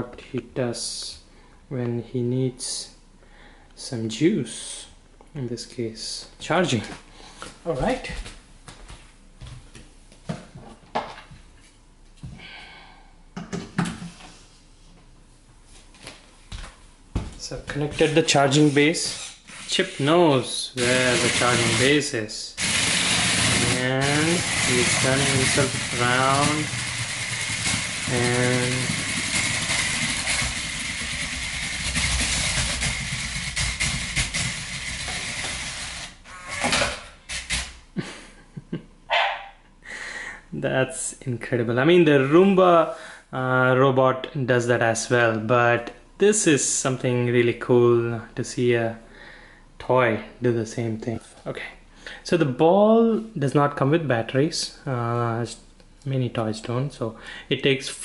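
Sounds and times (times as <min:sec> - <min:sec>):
robot wheel motors whirring: 0:18.5 - 0:20.2, 0:20.8 - 0:22.0, 0:22.6 - 0:37.7.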